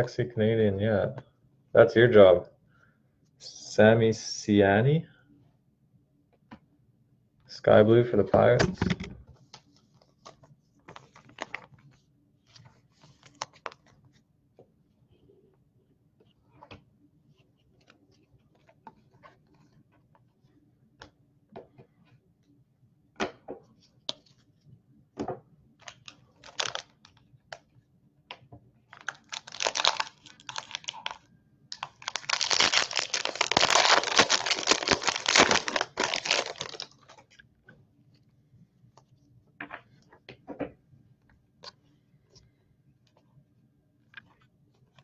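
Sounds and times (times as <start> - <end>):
card packs clicking and rustling: 25.9 - 26.9, 28.9 - 37.2
foil wrapper crinkling and tearing: 26.0 - 26.9, 28.9 - 37.2.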